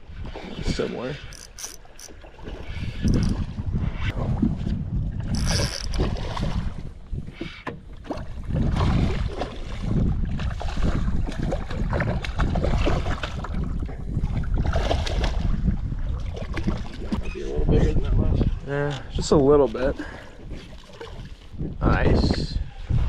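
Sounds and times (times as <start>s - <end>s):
wind buffeting microphone: 0.0s - 23.0s
fishing reel winding: 1.3s - 2.2s, 3.0s - 3.4s, 5.3s - 6.0s.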